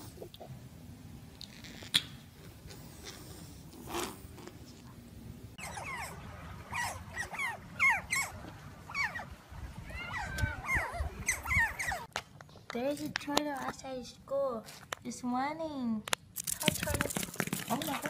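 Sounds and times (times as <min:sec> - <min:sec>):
otters chirping: 0:05.6 - 0:09.4, 0:10.0 - 0:12.1.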